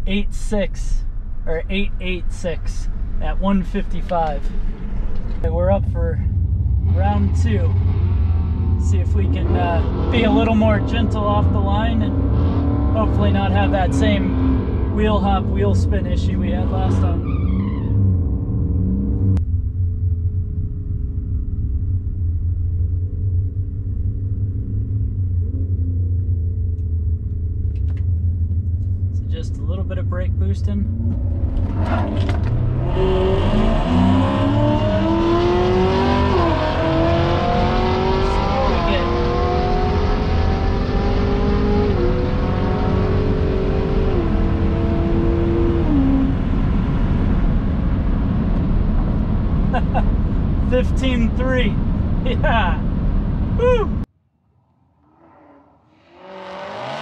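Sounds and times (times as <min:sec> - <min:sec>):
wind and tyre noise: 0:00.0 - 0:54.1
engine at full throttle: 0:30.9 - 0:47.6, 0:56.0 - 0:57.0.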